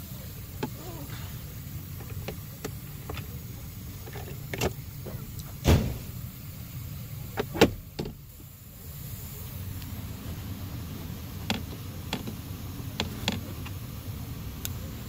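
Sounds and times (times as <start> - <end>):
hard plastic clicks and knocks: 11.4 - 13.8.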